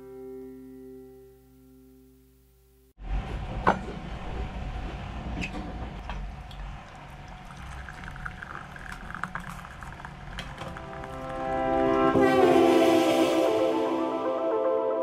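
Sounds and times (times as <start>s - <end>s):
liquid pouring into a cup: 6.4s - 11.8s.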